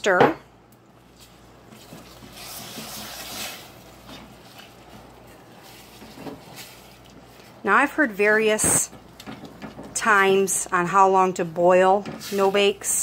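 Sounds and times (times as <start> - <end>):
spatula scraping sugar in a pan: 1.7 - 7.2, 12.2 - 13.0.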